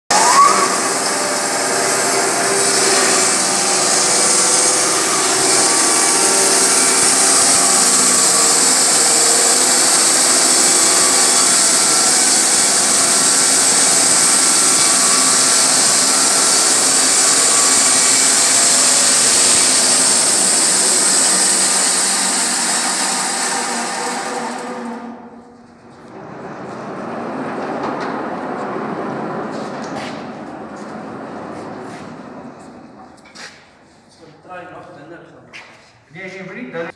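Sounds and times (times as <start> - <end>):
band saw cutting log: 0.1 - 25.4.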